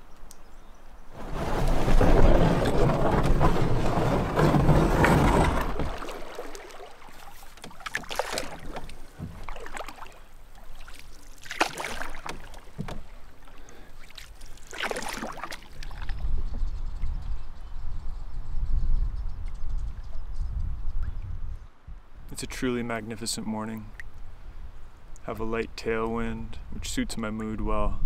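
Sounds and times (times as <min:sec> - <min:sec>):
paddle strokes in water: 0:01.1 - 0:16.7
wind on microphone: 0:15.8 - 0:22.3.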